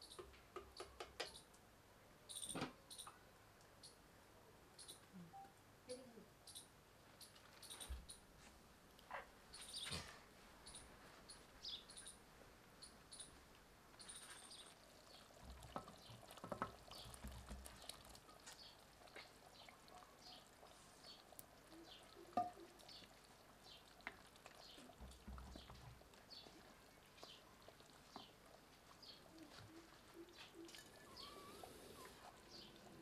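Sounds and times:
faint birds chirping: 0.0 - 8.4, 9.0 - 33.0
curry simmering in a pot: 12.9 - 33.0
knocks of clay pot: 22.4 - 22.6.

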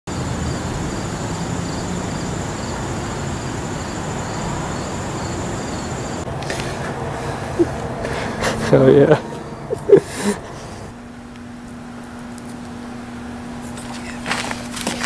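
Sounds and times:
insect chirp pulsing: 0.1 - 8.4
insects trilling: 0.1 - 15.0
low background rumble: 0.2 - 14.3.

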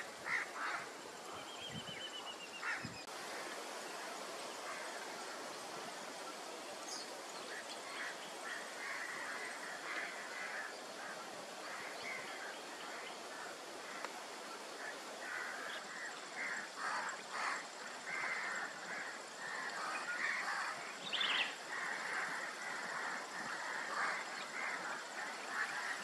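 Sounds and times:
birds calling: 14.8 - 26.0.

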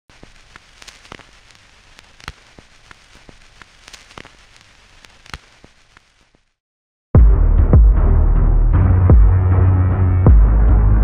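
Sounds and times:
crackling surface noise: 0.0 - 6.6.

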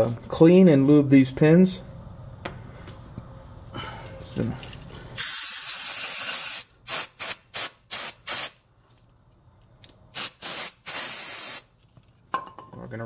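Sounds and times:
aerosol spray can squirting: 5.2 - 8.6, 10.2 - 11.7.

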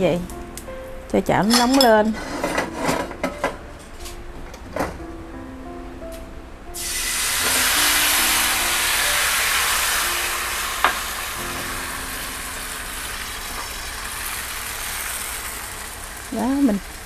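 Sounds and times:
batter sizzling in hot pan: 6.8 - 17.0.

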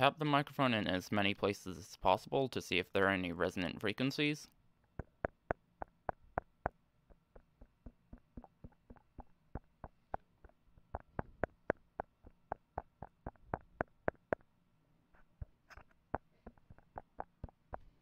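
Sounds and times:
fingertip taps on microphone: 4.9 - 14.4, 15.2 - 18.0.

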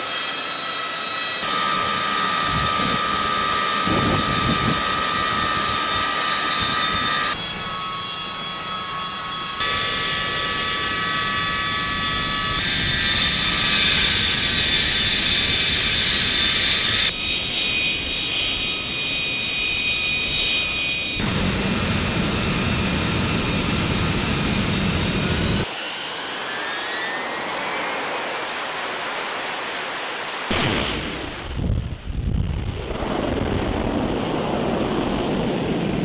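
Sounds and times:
jet engine roaring with whine: 0.0 - 36.0.

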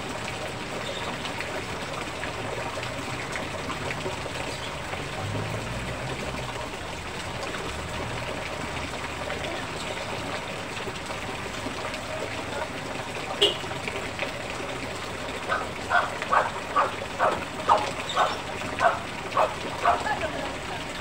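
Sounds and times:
heavy rain: 0.0 - 21.0
water pouring off roof: 0.0 - 21.0
dog barking: 15.5 - 20.1.

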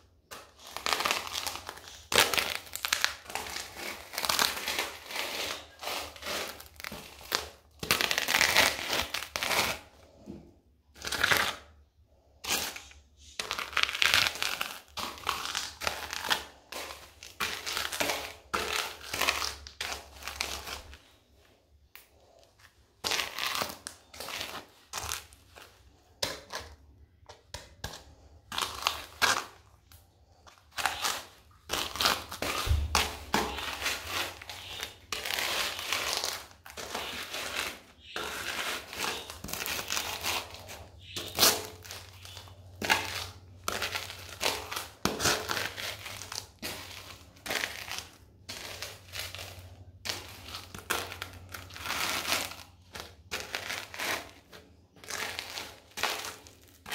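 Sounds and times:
pretzels crunching underfoot: 0.0 - 56.9.

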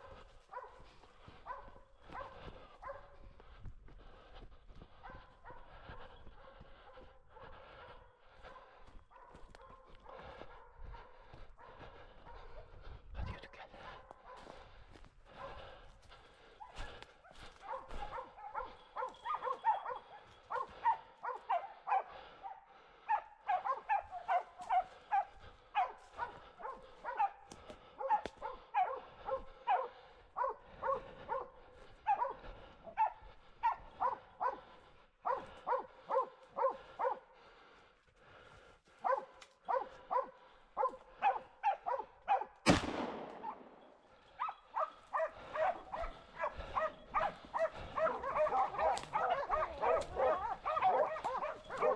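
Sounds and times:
dogs barking: 0.0 - 51.9
loud sharp bang: 42.7 - 43.6.

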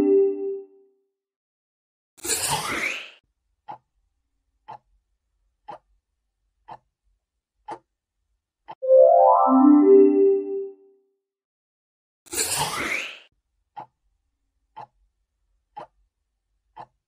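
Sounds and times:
rising electronic jingle: 8.8 - 10.8.

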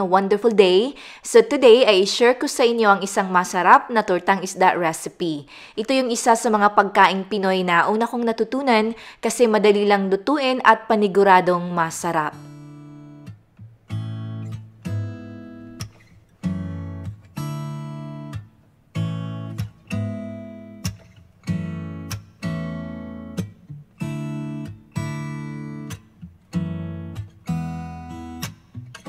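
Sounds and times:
strummed acoustic guitar chords: 12.3 - 29.0.

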